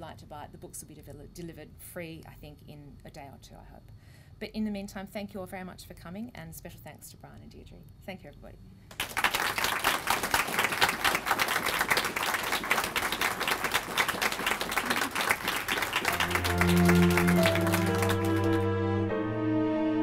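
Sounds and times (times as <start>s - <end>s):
audience applause: 8.9s - 18.7s
music with sustained low notes: 16.1s - 20.0s.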